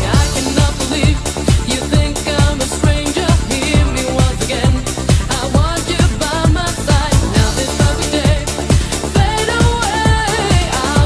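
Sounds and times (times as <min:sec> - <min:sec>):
four-on-the-floor kick drum: 0:00.0 - 0:11.0
synth melody: 0:03.8 - 0:05.3.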